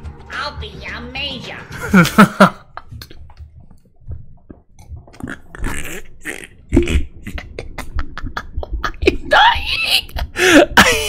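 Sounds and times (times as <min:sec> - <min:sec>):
man's stifled laughter: 0:07.3 - 0:11.0.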